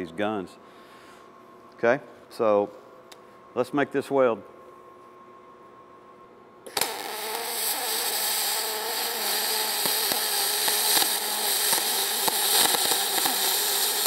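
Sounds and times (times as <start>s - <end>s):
welding arc hissing and crackling: 6.7s - 14.0s.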